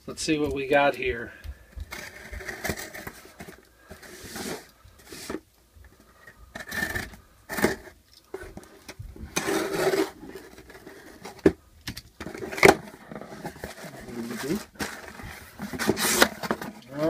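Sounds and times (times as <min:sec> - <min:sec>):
cardboard box being handled: 0:12.2 - 0:16.8.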